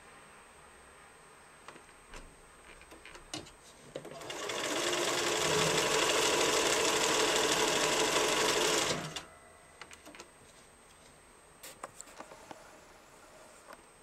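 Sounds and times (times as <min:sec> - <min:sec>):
sewing machine running: 0:04.0 - 0:09.2.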